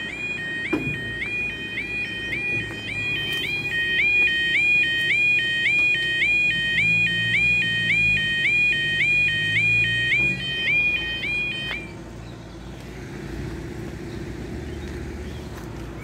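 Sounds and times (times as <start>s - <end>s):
level crossing two-tone alarm: 0.0s - 11.9s.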